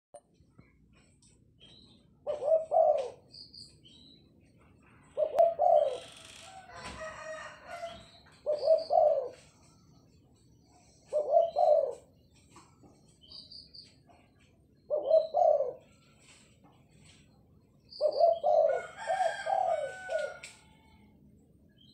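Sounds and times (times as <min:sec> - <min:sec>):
dove cooing: 0:02.2 - 0:03.4, 0:04.8 - 0:09.8, 0:10.7 - 0:12.7, 0:14.1 - 0:16.3, 0:18.0 - 0:21.0.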